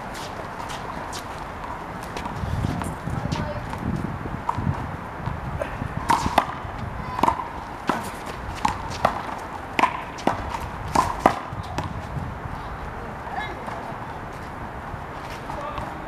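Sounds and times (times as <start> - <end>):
handball smacks and bounces: 8.6 - 11.9.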